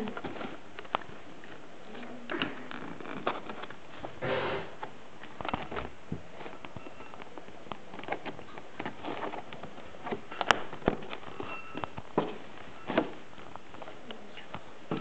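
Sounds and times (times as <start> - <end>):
plastic packaging crinkling: 0.0 - 4.2, 4.8 - 15.0.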